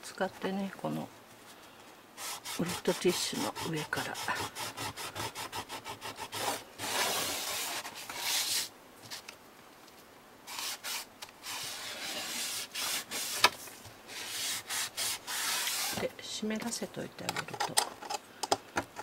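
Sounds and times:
scraping residue off metal bar: 0:10.5 - 0:13.5.

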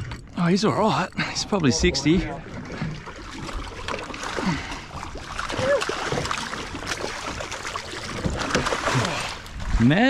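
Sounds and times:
fish thrashing water splashing: 0:02.4 - 0:09.6.

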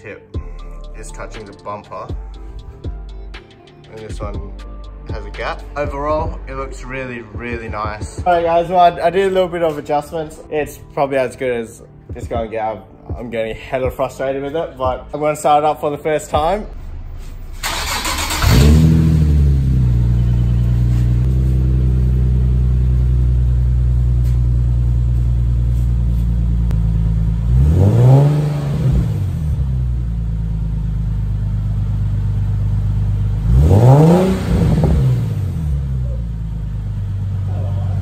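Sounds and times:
car engine idling and revving: 0:16.4 - 0:38.0.

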